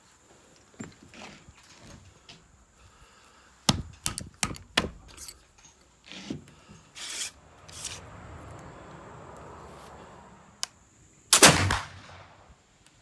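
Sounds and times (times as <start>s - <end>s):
short scraping: 5.1s - 8.1s.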